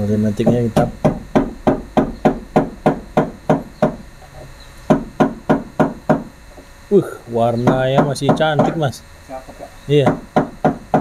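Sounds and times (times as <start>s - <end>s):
sharp metallic knocks: 0.4s - 4.1s, 4.9s - 6.3s, 7.6s - 8.8s, 10.0s - 11.0s.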